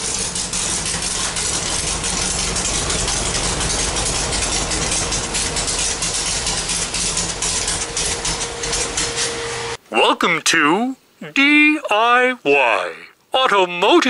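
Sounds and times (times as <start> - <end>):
car engine idling: 0.0 - 9.8.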